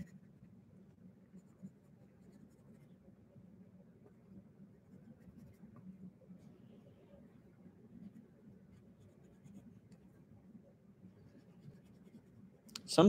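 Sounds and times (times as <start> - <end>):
pencil scratching on paper: 1.4 - 2.9, 4.8 - 5.8, 11.2 - 12.4.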